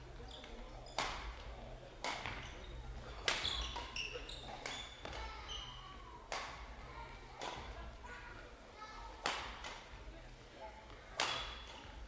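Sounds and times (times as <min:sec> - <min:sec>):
shoes squeaking on court: 0:00.2 - 0:01.4, 0:02.2 - 0:05.9
racket hitting shuttlecock: 0:02.0 - 0:02.4, 0:06.3 - 0:06.6, 0:09.2 - 0:09.8, 0:11.2 - 0:11.9.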